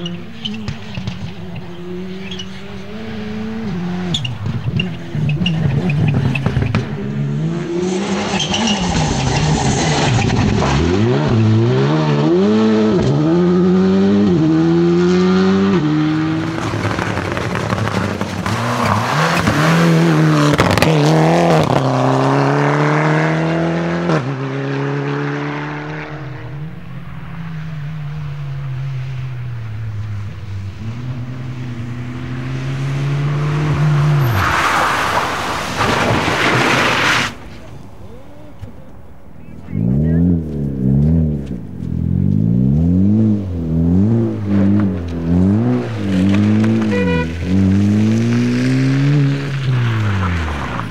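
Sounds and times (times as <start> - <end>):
rally car engine revving: 0.0 - 50.9
car passing by: 16.4 - 38.2.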